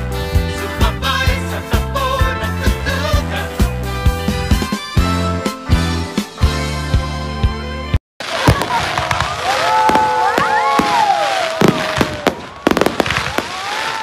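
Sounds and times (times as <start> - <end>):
fireworks bangs and crackle: 8.2 - 14.0
wavering whoops: 8.9 - 14.0.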